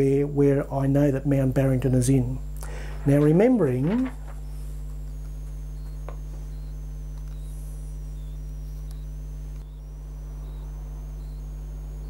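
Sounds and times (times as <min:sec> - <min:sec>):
low electrical hum: 0:00.0 - 0:12.0
high-pitched chirping tones: 0:05.7 - 0:12.0.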